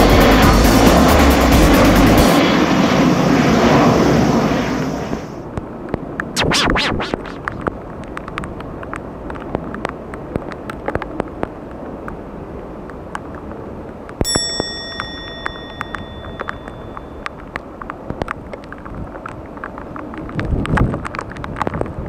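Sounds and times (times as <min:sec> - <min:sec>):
bell-like ding: 0:14.2 - 0:17.4.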